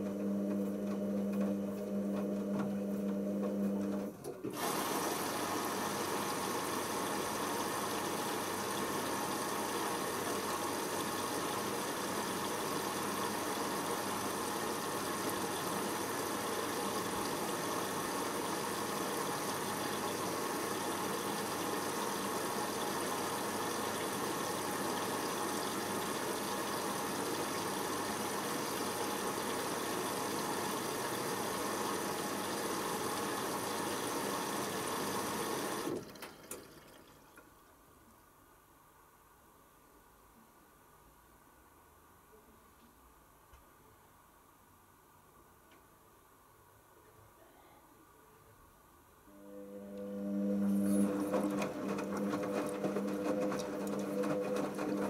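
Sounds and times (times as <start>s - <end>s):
washing machine filling with water: 0.0s - 37.6s, 49.4s - 55.0s.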